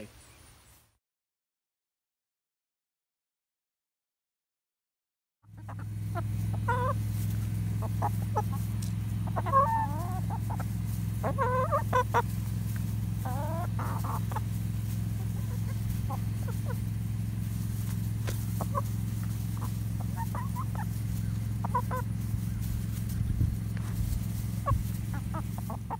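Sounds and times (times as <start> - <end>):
chickens clucking: 5.4 - 25.9
chicken squawks: 5.5 - 12.4, 13.1 - 17.0, 17.8 - 25.9
steady low hum: 5.5 - 25.9.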